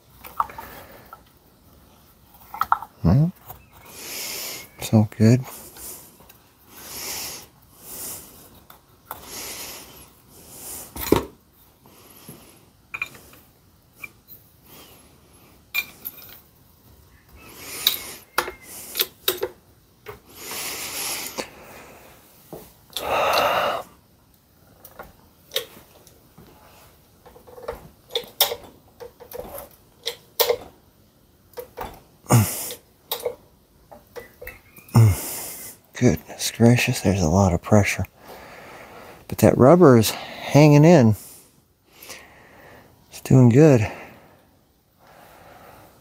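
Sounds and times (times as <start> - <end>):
hydraulic jack metallic clicks and clanks: 27.3 - 30.7.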